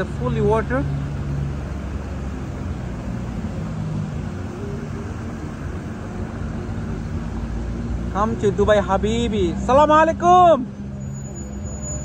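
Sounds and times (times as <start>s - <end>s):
tyres through floodwater: 0.0s - 12.0s
vehicle engines humming: 0.0s - 12.0s.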